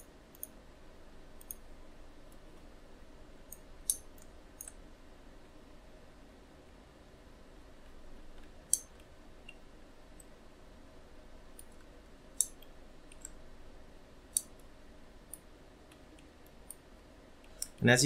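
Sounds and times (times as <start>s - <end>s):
faint room hum: 0.0s - 18.0s
computer mouse clicking: 0.3s - 0.6s, 1.4s - 1.6s, 11.5s - 13.4s, 14.3s - 14.7s.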